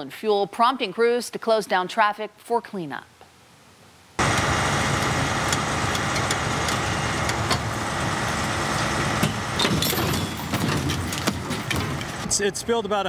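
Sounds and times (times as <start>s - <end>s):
heavy truck engine running: 4.2s - 12.4s
metal knocks and clanks: 8.8s - 12.3s.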